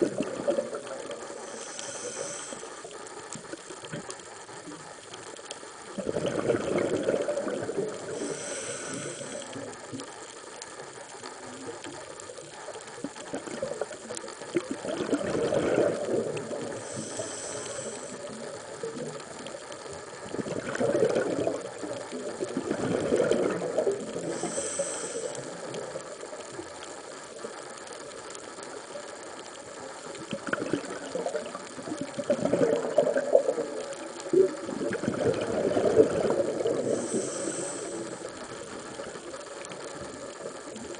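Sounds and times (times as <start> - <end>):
exhaust bubbles bubbling: 0.0 - 4.1, 5.9 - 10.2, 12.5 - 26.0, 30.2 - 40.9
regulator inhalation hisses: 0.2 - 5.6, 7.9 - 11.6, 16.0 - 20.0, 23.8 - 26.6, 36.6 - 39.1.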